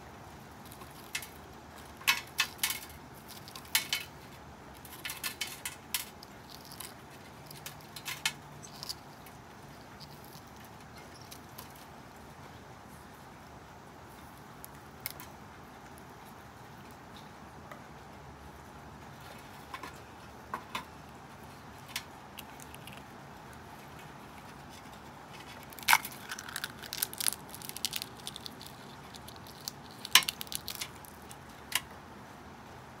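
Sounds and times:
eggshell cracking and crackling: 0.5 - 11.9, 14.2 - 15.3, 19.3 - 31.9.

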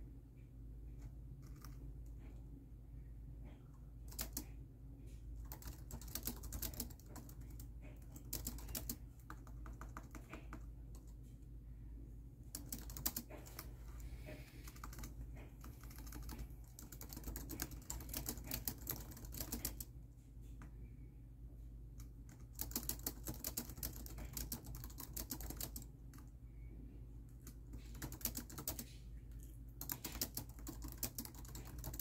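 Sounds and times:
low steady hum: 0.0 - 32.0
laptop keyboard typing: 4.0 - 4.6, 5.4 - 11.2, 12.4 - 19.9, 22.0 - 26.3, 27.3 - 29.0, 29.8 - 32.0.

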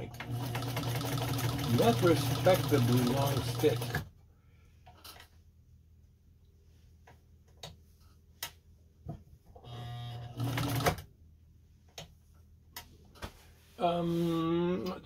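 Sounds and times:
sewing machine motor hum: 0.1 - 4.0, 9.6 - 11.0.

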